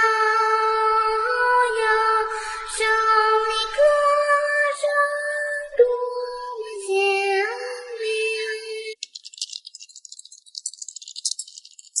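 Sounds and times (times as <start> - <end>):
rapid high clicking rattle: 9.0 - 12.0.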